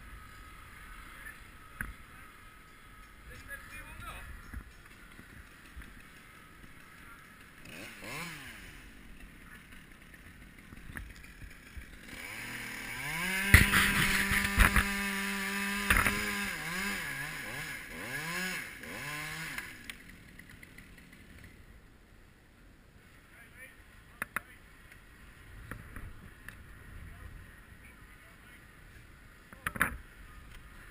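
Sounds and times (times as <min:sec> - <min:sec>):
chainsaw engine revving: 0:04.8 - 0:21.6.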